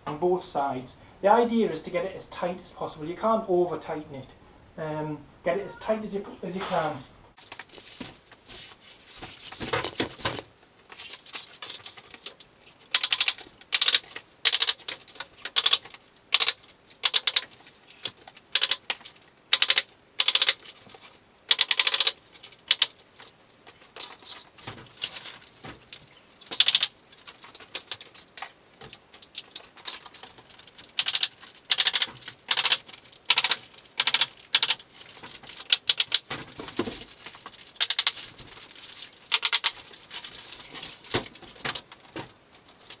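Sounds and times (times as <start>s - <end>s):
plastic sheet rustling: 6.6s - 12.8s.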